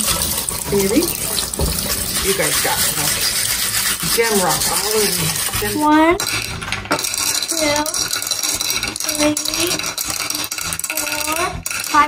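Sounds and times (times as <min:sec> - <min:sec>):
person speaking: 0:02.1 - 0:06.2
small stones clicking and rattling: 0:05.2 - 0:12.0.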